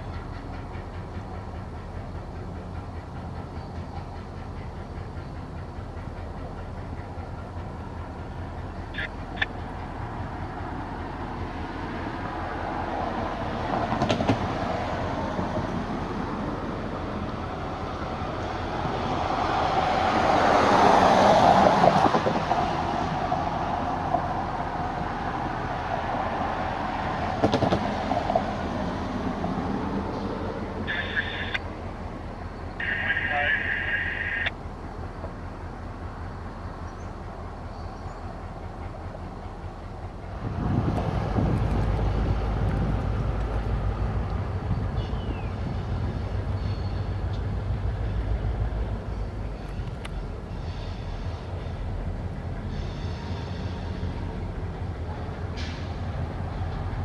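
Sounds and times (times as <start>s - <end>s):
diesel locomotive rumbling: 0.0s - 57.0s.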